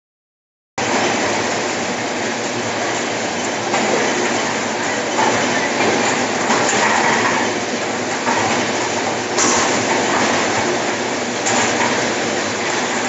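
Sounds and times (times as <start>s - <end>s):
bars clattering on spinning metal disk: 3.7s - 13.0s.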